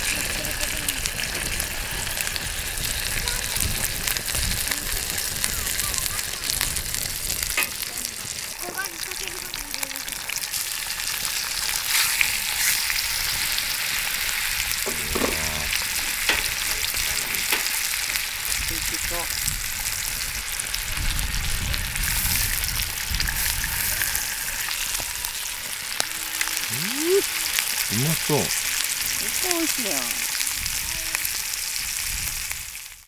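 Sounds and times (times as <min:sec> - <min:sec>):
steaks sizzling in a skillet: 0:00.0 - 0:33.0.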